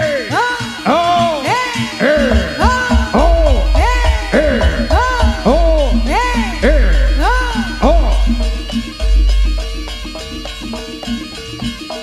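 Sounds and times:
wind instrument melody with sliding notes: 0.9s - 12.0s
low drum strokes: 2.2s - 10.1s.

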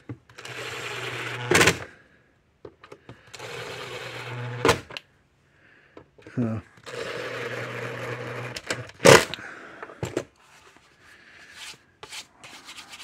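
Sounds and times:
cordless drill driving screws: 0.3s - 1.9s, 3.3s - 5.0s, 6.8s - 9.4s.

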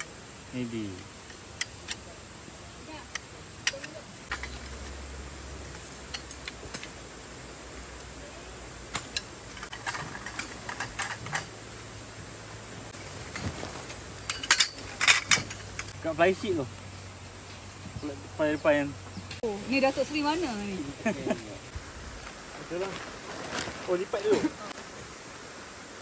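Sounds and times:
steady hiss: 0.0s - 26.0s.

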